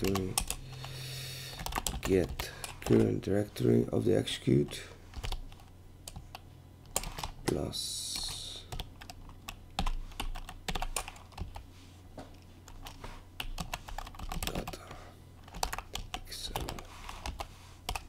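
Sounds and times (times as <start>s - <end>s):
low electrical hum: 0.0s - 18.0s
keyboard keys clicking: 1.5s - 3.1s, 12.7s - 14.7s, 15.4s - 18.0s.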